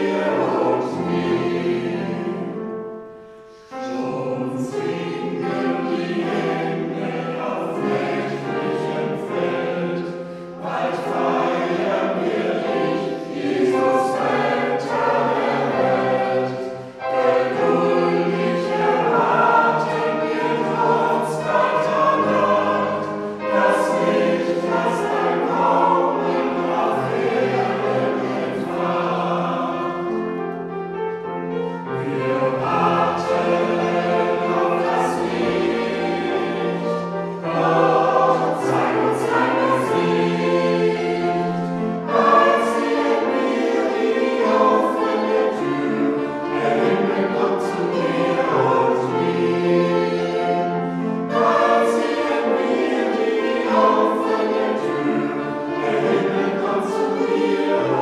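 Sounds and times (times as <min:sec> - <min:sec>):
church choir singing a hymn: 0:00.0 - 0:58.0
singers breathing: 0:03.1 - 0:03.8.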